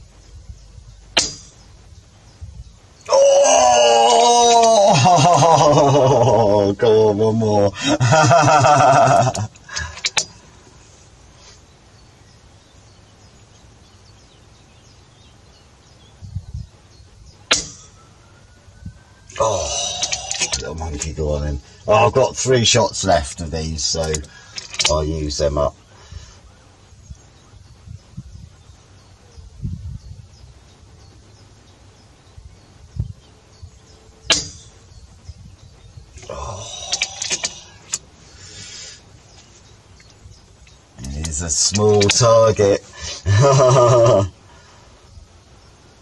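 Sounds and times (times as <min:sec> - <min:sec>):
wind rumble on microphone: 0:00.0 - 0:03.0, 0:14.0 - 0:17.5, 0:18.2 - 0:19.3, 0:25.7 - 0:36.5
faint birdsong: 0:00.0 - 0:46.0
insects chirping: 0:00.0 - 0:46.0
air rifle shot: 0:17.5 - 0:17.9.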